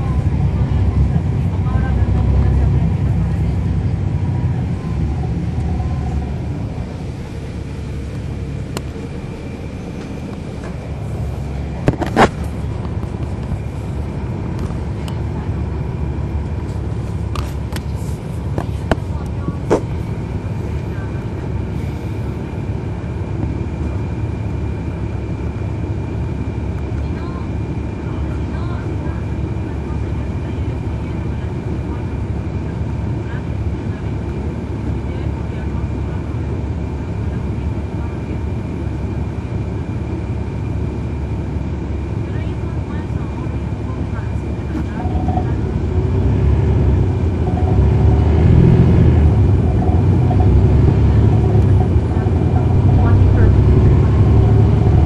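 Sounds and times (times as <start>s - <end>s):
diesel bus engine rumble: 0.0s - 55.0s
high whine: 46.7s - 55.0s.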